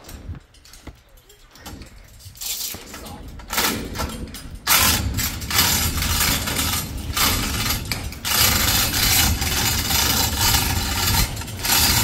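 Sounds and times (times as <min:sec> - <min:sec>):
chain rattling through pulley: 0:00.0 - 0:12.0
low rumble: 0:01.8 - 0:12.0.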